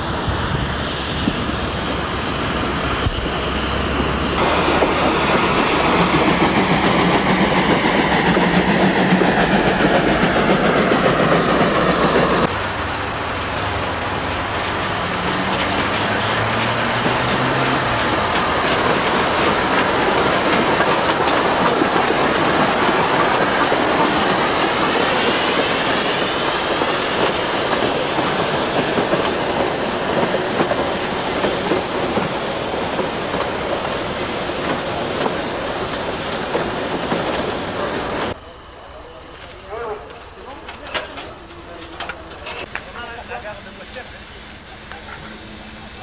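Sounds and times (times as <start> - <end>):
train wheels clacking over rail joints: 4.0 - 12.5, 13.4 - 38.4.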